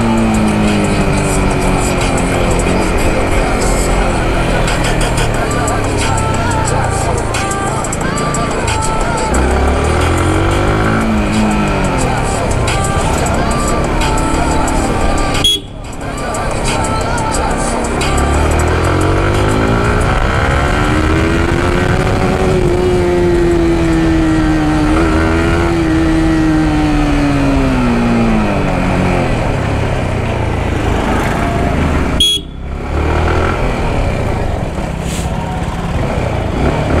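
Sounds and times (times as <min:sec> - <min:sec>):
motorcycle engine running: 0:00.0 - 0:37.0.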